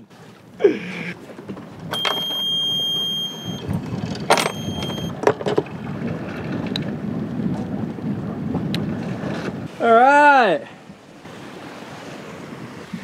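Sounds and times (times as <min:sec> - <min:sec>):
alarm buzzer high tone: 0:02.0 - 0:03.6, 0:04.4 - 0:05.1.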